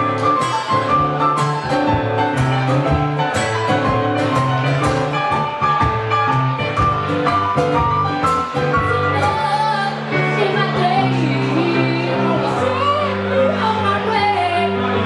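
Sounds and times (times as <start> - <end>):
live blues band playing: 0.0 - 15.0
woman singing: 8.8 - 15.0.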